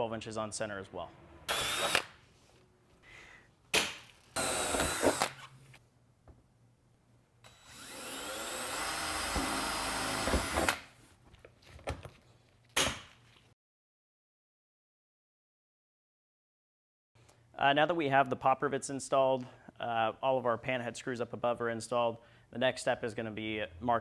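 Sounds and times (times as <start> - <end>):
cordless drill boring steel: 1.5 - 2.1, 4.4 - 5.4, 7.4 - 10.8.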